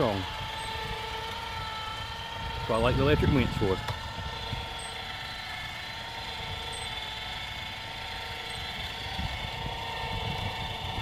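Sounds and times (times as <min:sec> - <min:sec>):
electric winch motor whine: 0:00.0 - 0:11.0.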